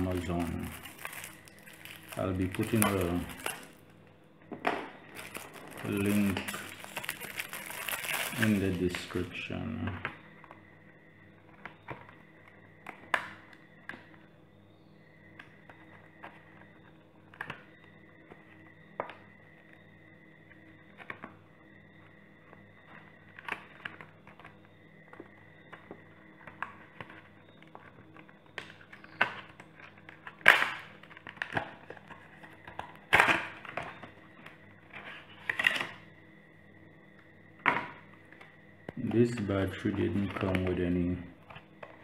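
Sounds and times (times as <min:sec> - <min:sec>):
plastic wrapping crinkling: 0:00.0 - 0:03.9, 0:05.0 - 0:09.4.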